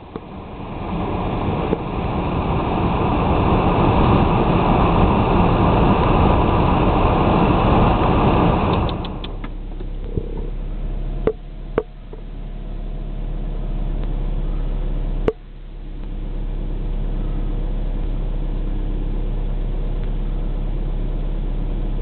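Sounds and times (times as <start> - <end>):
wind buffeting microphone: 0.0 - 9.4.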